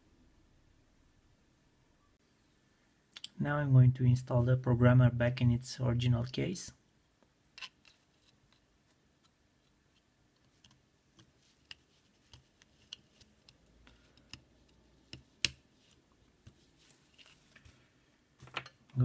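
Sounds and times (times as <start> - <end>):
small plastic clicks and taps: 10.4 - 15.6.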